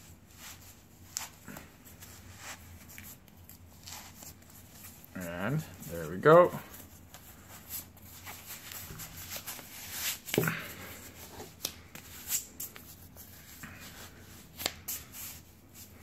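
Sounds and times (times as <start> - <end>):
cloth rubbing against skin: 0.0 - 10.4.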